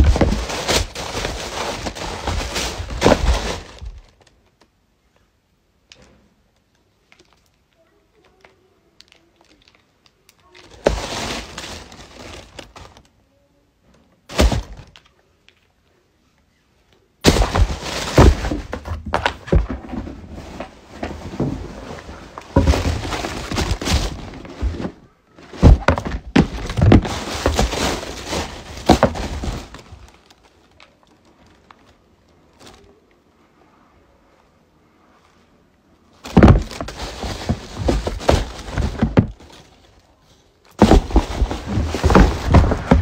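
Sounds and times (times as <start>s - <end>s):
tissue paper rustling and crumpling: 0.0s - 4.4s, 8.4s - 13.1s, 17.2s - 33.1s, 36.2s - 43.0s
knocks and thuds on shoe box: 14.3s - 14.8s, 17.2s - 20.1s, 22.5s - 27.9s, 36.3s - 39.4s, 40.8s - 43.0s.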